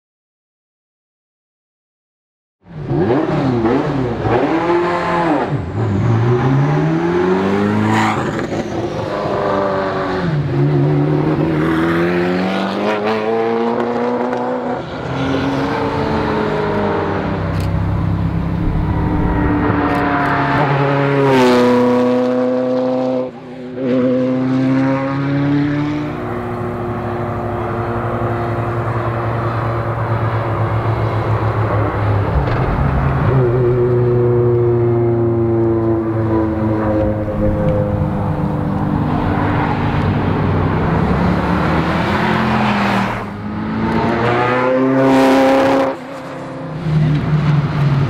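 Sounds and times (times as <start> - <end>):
sports car accelerating hard: 2.8 - 48.0
car passing at speed: 11.6 - 23.2, 23.9 - 47.9.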